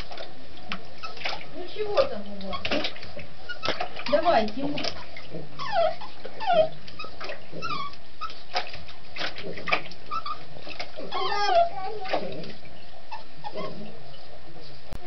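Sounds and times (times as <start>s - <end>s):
dog whimpering: 5.5s - 8.4s, 10.1s - 12.5s, 13.1s - 14.0s.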